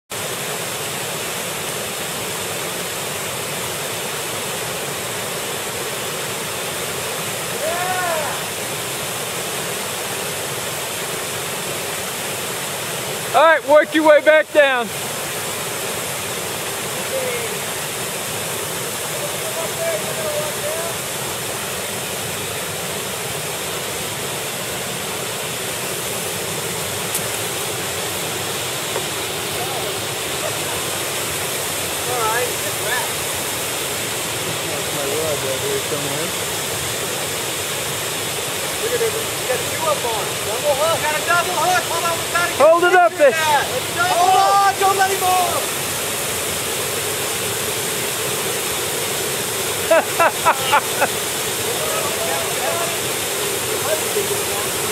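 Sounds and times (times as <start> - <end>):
waterfall rushing: 0.1 - 54.9
brief shout: 7.6 - 8.5.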